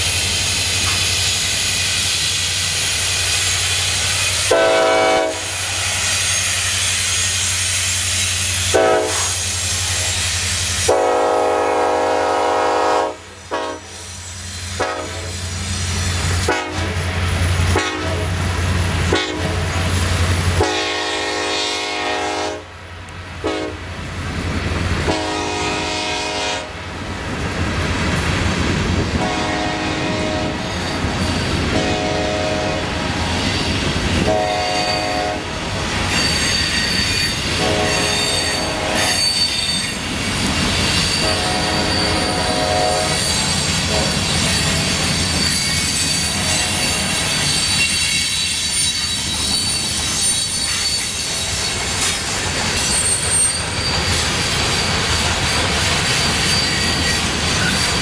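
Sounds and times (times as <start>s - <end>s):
wheels clacking on rail joints: 0.0s - 4.9s, 30.4s - 58.0s
freight train rolling past: 0.0s - 58.0s
train horn blasts: 4.4s - 5.7s, 8.6s - 10.1s, 10.8s - 14.0s, 14.8s - 15.4s, 16.4s - 17.1s, 17.7s - 18.3s, 19.1s - 19.6s, 20.6s - 22.8s, 23.4s - 23.9s, 25.0s - 26.8s, 29.1s - 30.7s, 31.6s - 33.1s, 34.2s - 35.6s, 37.5s - 39.3s, 41.2s - 44.3s, 46.4s - 47.0s
high-pitched wheel squeal: 33.3s - 58.0s.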